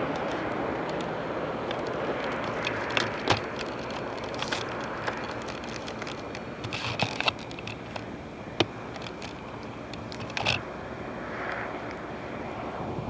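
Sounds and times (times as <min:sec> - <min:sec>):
distant airplane: 0:00.0 - 0:13.0.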